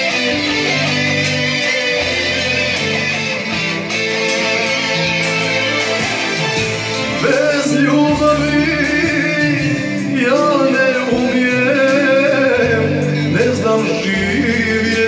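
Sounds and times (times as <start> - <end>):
instrumental backing music: 0.0 - 15.0
man singing with vibrato: 4.2 - 15.0.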